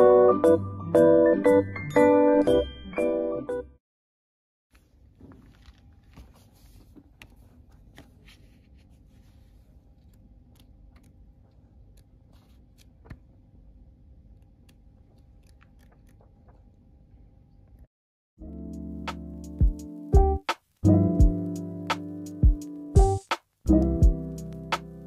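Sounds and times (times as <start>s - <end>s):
book pages turning: 4.7s - 13.4s, 14.2s - 16.8s.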